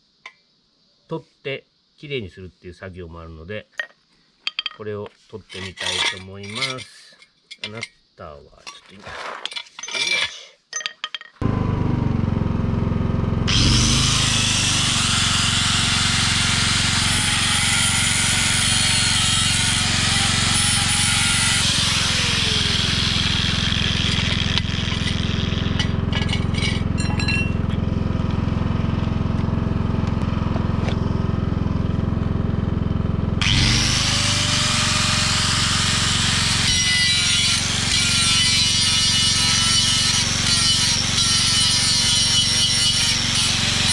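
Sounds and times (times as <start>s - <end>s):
angle grinder grinding metal: 13.5s - 31.0s, 33.4s - 43.9s
steady low hum: 21.8s - 33.4s.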